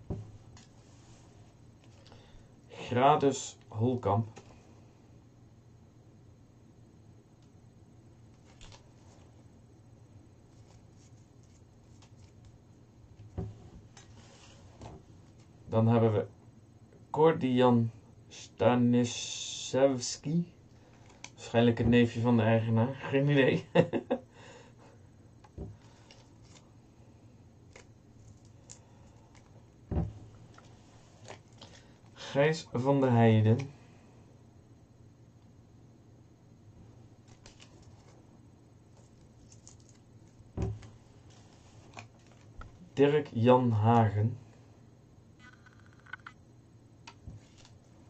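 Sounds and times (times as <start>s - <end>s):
low steady hum: 0.0s - 48.0s
paper crinkling and rustling: 8.4s - 9.3s, 10.5s - 12.6s, 25.8s - 26.7s, 30.4s - 31.8s, 37.2s - 38.2s, 38.9s - 42.8s, 47.2s - 47.9s
soft thump: 29.9s - 30.3s.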